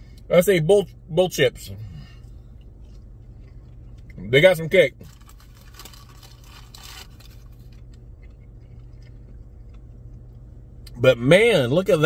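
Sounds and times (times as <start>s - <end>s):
low steady hum: 0.0s - 12.0s
person chewing crunchy food: 2.2s - 4.2s, 5.0s - 10.8s.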